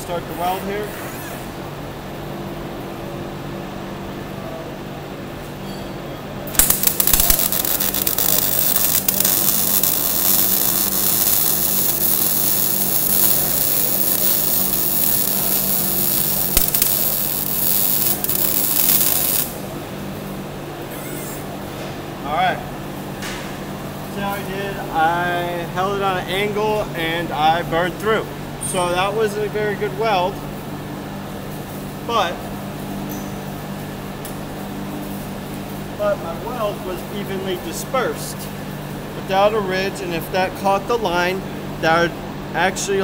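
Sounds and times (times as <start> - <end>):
steady hum: 0.0 - 43.0
welding arc crackling sizzle: 6.5 - 21.5.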